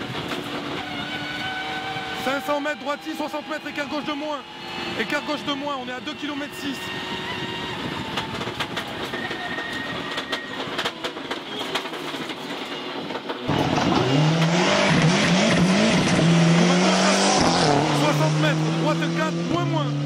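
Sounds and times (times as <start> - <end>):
rally car engine revving: 0.0 - 9.4, 13.4 - 20.0
road noise and rattling: 0.0 - 20.0.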